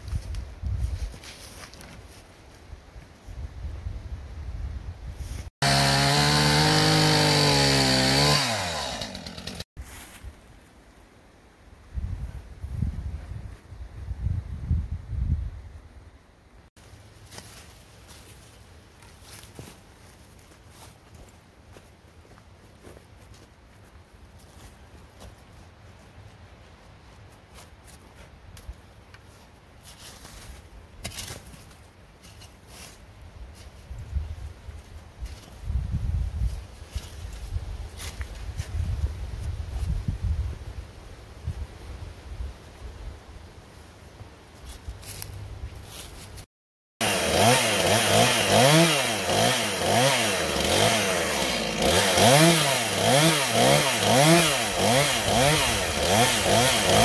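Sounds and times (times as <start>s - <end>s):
boots scuffing loose soil: 0.0s - 3.2s, 9.8s - 10.8s, 16.8s - 35.7s, 44.2s - 46.5s
log handled in dry leaves: 0.0s - 3.4s, 8.9s - 11.1s, 16.8s - 46.5s
chainsaw running: 5.6s - 9.7s, 47.0s - 57.0s
shovel scraping dirt: 29.8s - 33.8s.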